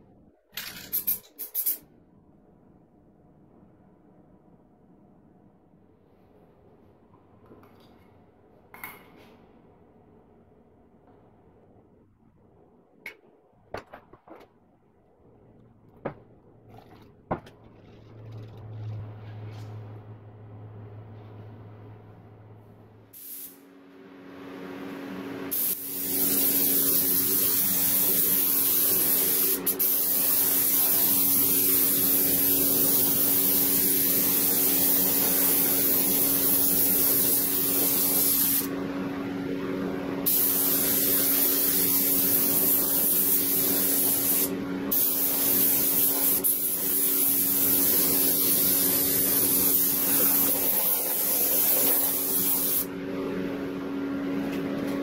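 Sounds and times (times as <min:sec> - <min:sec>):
paint spray hiss: 0:23.2 - 0:23.6, 0:25.5 - 0:38.7, 0:40.3 - 0:52.9.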